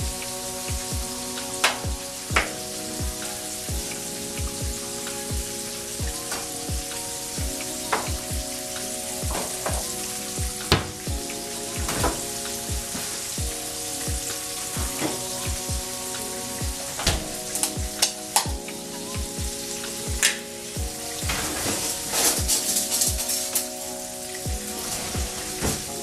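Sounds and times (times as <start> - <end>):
background music with bass beat: 0.0 - 26.0
utensils clinking: 0.0 - 26.0
oil sizzling with frying fish: 0.1 - 26.0.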